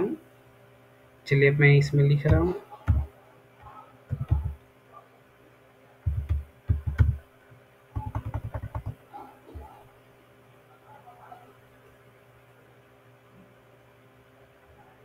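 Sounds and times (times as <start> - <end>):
typing on computer keyboard: 4.1 - 4.6, 6.1 - 7.2, 8.0 - 9.0.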